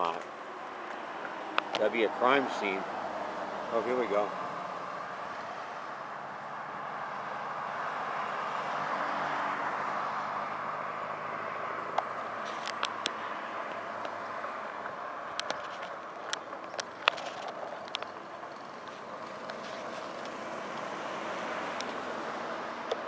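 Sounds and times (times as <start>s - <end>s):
bicycle rolling on road: 9.1s - 23.0s
sharp clicks and ticks: 11.9s - 19.6s.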